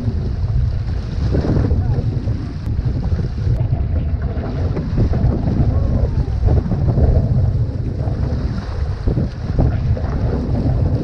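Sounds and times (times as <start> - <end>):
water splashing along canoe hull: 0.0 - 11.0
wind buffeting microphone: 0.0 - 11.0.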